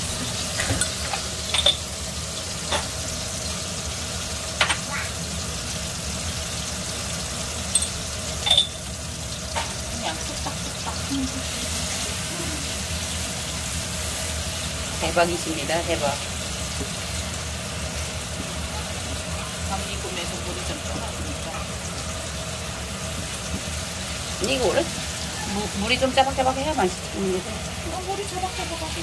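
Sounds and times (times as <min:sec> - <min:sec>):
vegetables sizzling in oil: 0:00.0 - 0:29.0
spoon clinking: 0:00.8 - 0:01.9, 0:07.7 - 0:08.9.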